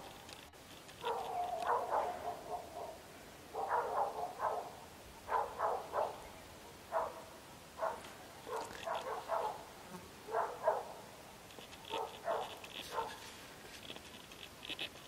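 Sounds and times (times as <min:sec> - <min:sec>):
monkeys barking calls: 0:01.0 - 0:03.0.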